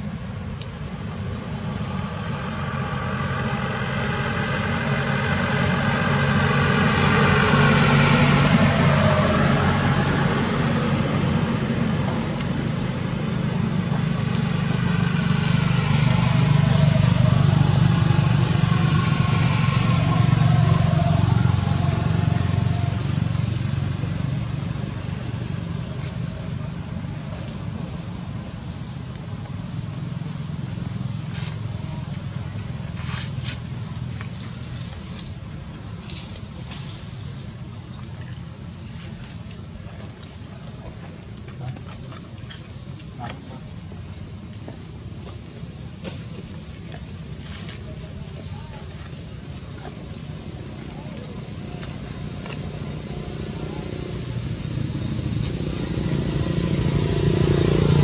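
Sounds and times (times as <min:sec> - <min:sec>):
thin high whine: 0:00.0 - 0:37.7
vehicle engines passing: 0:00.1 - 0:58.0.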